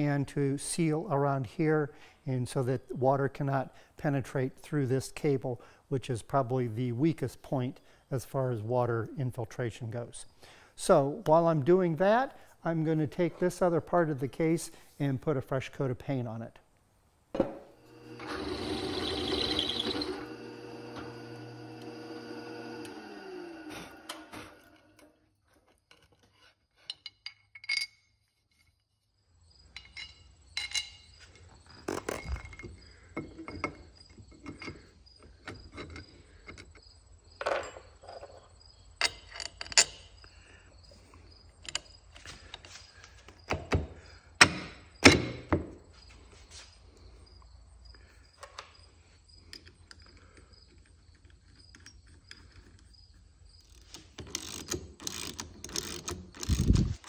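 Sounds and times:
metal parts clinking: 25.6s - 28.9s, 29.7s - 31.2s, 39.0s - 40.2s, 53.6s - 57.0s.

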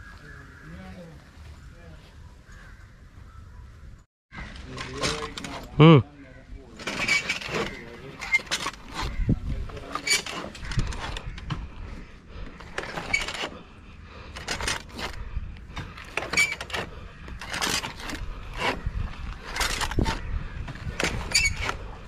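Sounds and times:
rope scraping against tree trunk: 6.8s - 22.0s.

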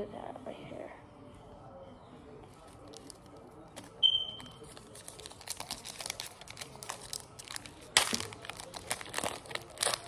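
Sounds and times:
plastic wrapper crinkling: 2.7s - 10.0s
plastic wrapper ripping: 2.8s - 10.0s.

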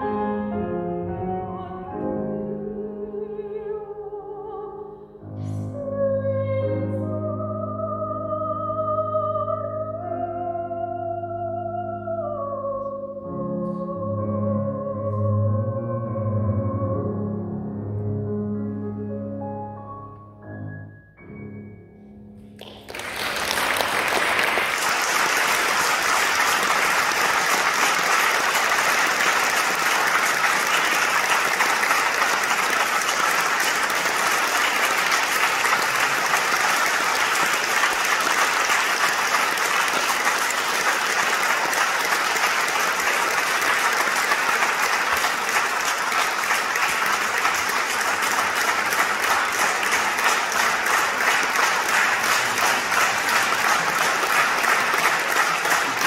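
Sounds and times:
audience applauding: 22.6s - 56.0s.

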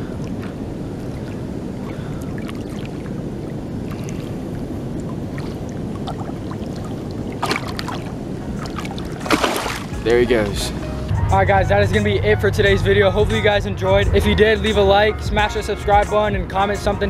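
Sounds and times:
fish splashing in water: 0.0s - 10.0s
flowing spillway water: 0.0s - 10.6s.

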